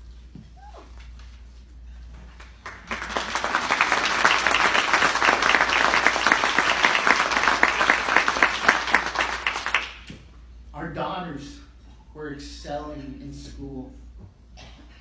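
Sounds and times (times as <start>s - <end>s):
audience clapping: 2.3s - 10.1s.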